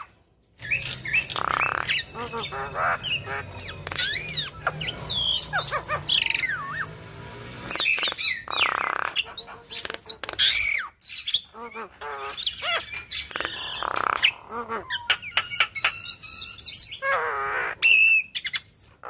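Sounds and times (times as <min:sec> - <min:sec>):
rasping buzz: 0:00.8 - 0:09.2.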